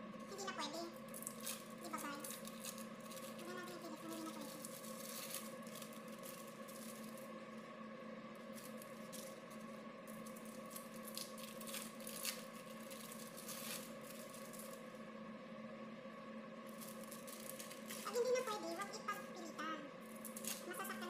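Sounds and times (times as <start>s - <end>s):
steady hum: 0.0s - 21.0s
plastic wrappers crinkling: 1.0s - 7.3s, 8.4s - 14.9s, 16.7s - 18.8s, 20.0s - 20.9s.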